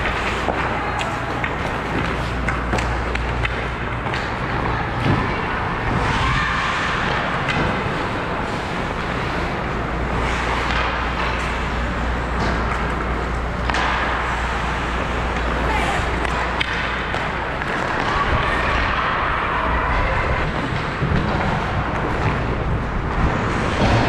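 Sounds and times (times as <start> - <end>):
clicks of sticks and puck: 0.0 - 5.2, 6.9 - 8.2, 9.1 - 19.1
skates scraping on ice: 0.0 - 24.0
steady low rumble: 0.0 - 24.0.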